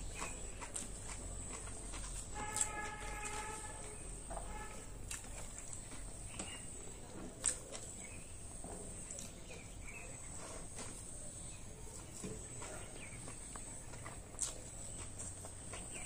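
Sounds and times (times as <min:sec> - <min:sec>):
chewing: 0:00.0 - 0:16.0.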